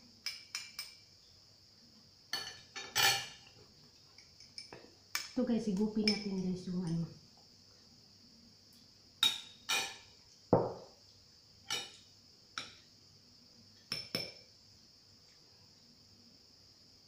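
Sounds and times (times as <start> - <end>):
cutlery clinking on plate: 2.3 - 3.5, 9.2 - 10.1, 11.7 - 12.0.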